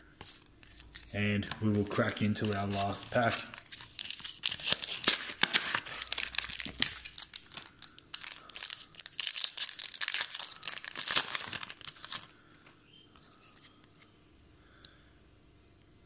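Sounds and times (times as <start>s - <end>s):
foil wrapper crinkling: 2.4s - 12.8s.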